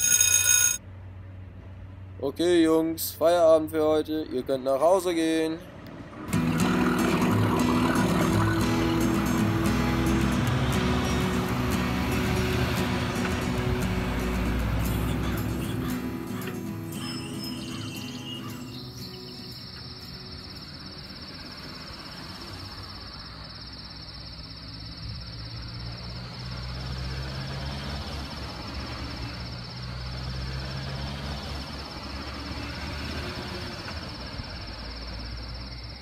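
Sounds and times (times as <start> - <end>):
crickets chirping: 13.4 - 36.0.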